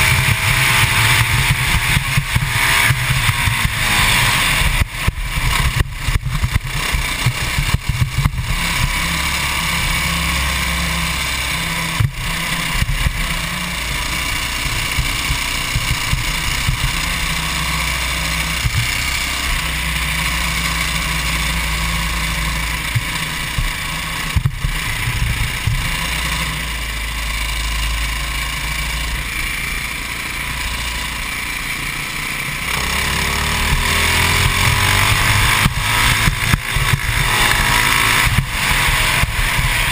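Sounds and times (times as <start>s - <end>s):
kart engine running hard: 0.0s - 39.9s.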